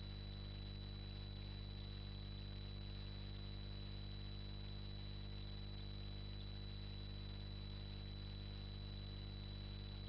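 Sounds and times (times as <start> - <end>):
thin high whine: 0.0 - 4.2
low electrical hum: 0.0 - 10.0.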